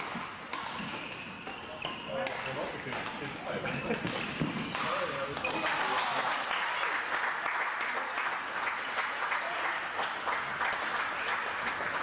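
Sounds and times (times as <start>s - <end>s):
many hands clapping: 5.4s - 12.0s.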